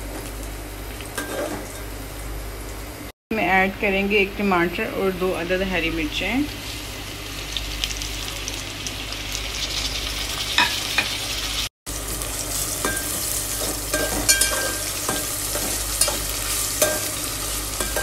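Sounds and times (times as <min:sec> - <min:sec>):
vegetables sizzling in hot oil: 0:06.1 - 0:18.0.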